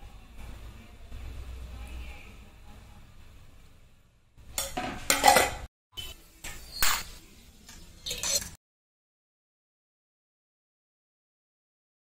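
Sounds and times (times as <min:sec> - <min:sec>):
steel kitchen vessels clattering: 0:04.5 - 0:05.7, 0:06.4 - 0:08.6.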